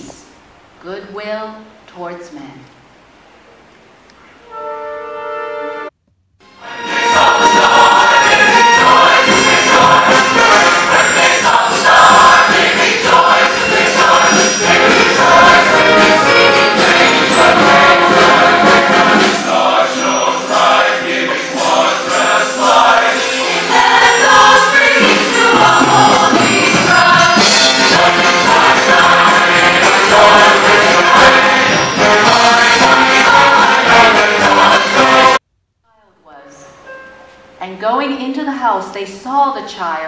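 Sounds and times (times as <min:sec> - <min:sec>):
orchestra accompaniment: 0:04.4 - 0:35.4
choir singing a carol: 0:06.5 - 0:35.4.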